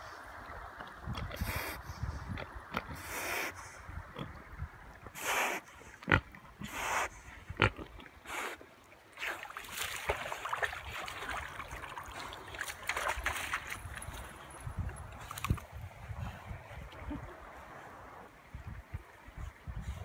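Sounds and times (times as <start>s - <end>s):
pig blowing noisy breaths: 5.2s - 5.9s, 6.6s - 7.4s
water splashing and sloshing: 7.5s - 19.7s.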